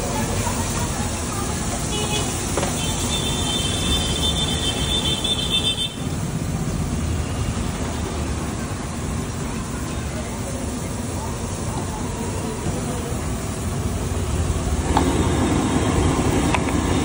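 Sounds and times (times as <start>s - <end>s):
street traffic rumble: 0.0s - 17.0s
vehicle horn: 1.9s - 6.1s.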